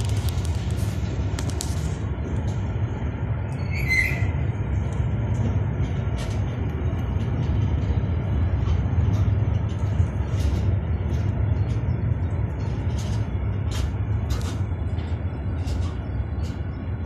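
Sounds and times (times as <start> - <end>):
train wheels rumbling on rail: 0.0 - 17.0
brief high squeal: 3.6 - 4.4.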